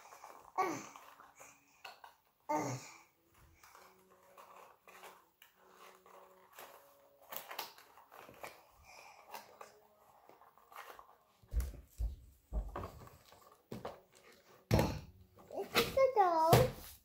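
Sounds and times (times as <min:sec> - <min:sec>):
packaging rustling and crinkling: 0:03.4 - 0:14.7
dull thumps and knocks: 0:11.5 - 0:13.1.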